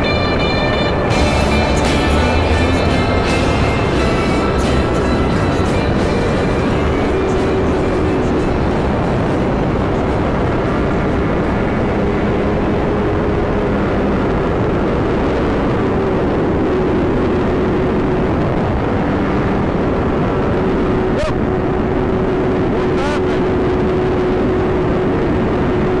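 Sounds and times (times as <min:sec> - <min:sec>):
motorcycle engine drone: 0:00.0 - 0:26.0
wind rush: 0:00.0 - 0:26.0.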